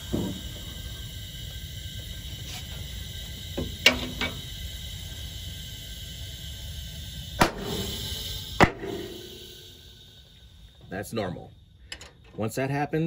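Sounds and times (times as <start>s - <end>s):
steady low rumble: 0.0s - 12.6s.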